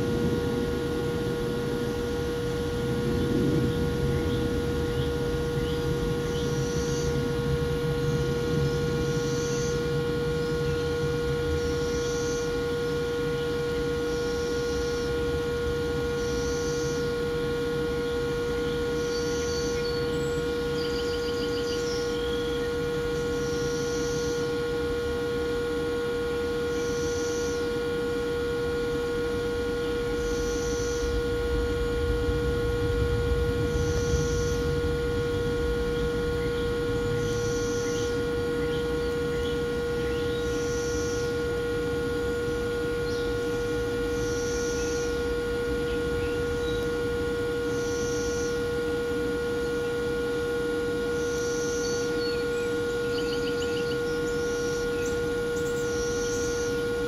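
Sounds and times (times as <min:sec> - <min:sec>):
low rumble: 0:00.0 - 0:11.8, 0:30.8 - 0:40.5
electrical hum: 0:00.0 - 0:57.0.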